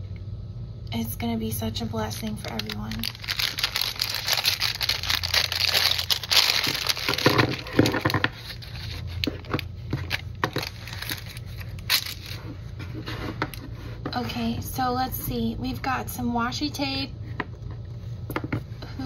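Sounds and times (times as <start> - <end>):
paper bag crinkling: 2.2 - 12.5.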